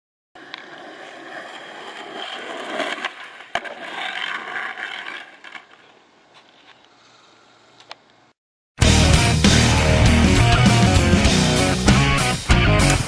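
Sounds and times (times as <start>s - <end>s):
skateboard clack: 0.4s - 8.2s
skateboard wheels rolling on asphalt: 0.4s - 8.3s.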